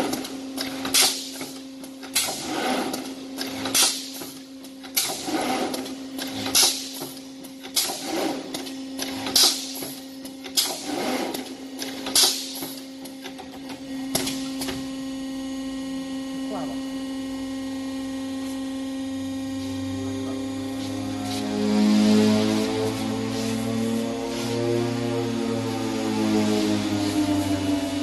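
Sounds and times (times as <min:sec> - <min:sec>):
steady electrical hum: 0:00.0 - 0:28.0
welding machine hissing strikes: 0:06.4 - 0:07.2, 0:12.1 - 0:12.8.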